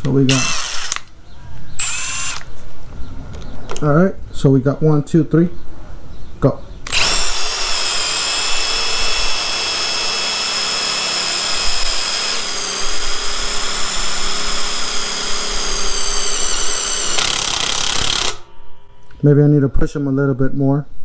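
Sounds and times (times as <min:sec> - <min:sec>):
impact drivers drilling into wood: 0:00.0 - 0:01.1, 0:01.8 - 0:02.5, 0:06.9 - 0:18.5.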